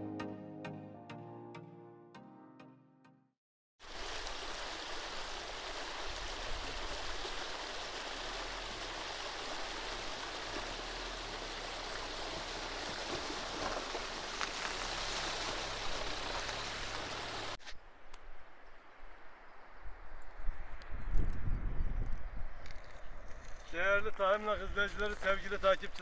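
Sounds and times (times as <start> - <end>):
car wheels churning water: 3.8 - 17.6
stream rushing over stones: 3.8 - 17.6.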